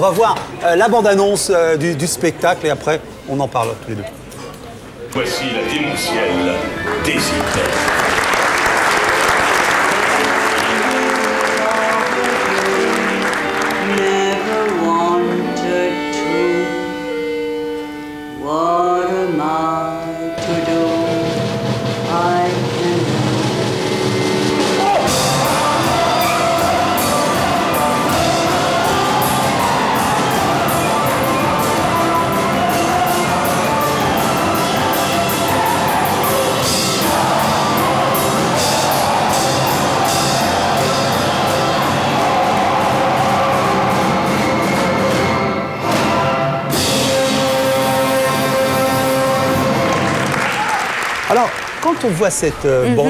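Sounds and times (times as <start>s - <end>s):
lively cabaret band music: 3.0s - 53.0s
accordion chords: 5.0s - 50.4s
woman singing: 10.1s - 17.2s, 18.4s - 23.8s
cymbals keeping a quick beat: 20.5s - 49.8s.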